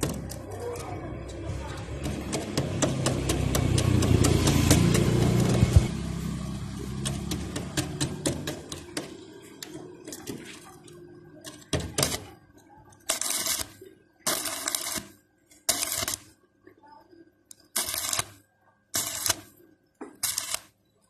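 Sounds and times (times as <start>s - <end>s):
crackling welding arc: 13.0s - 16.4s, 17.5s - 19.6s, 20.2s - 20.8s.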